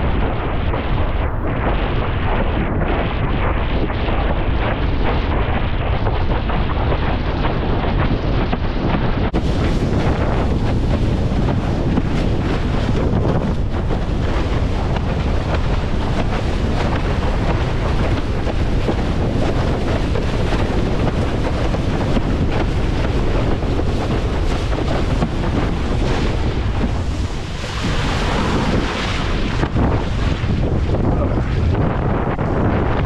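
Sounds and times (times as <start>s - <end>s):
choppy water rushing along board: 0.0s - 33.0s
wind buffeting microphone: 0.0s - 33.0s
water spray rushing: 9.3s - 31.8s.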